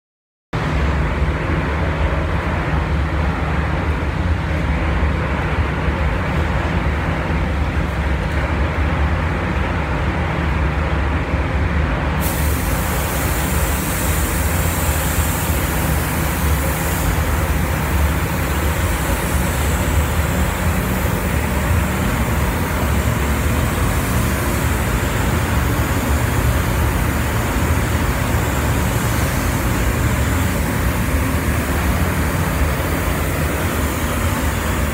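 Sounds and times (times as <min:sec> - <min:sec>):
ventilation rumble: 0:00.6 - 0:34.9
spray gun air hiss: 0:12.2 - 0:34.9.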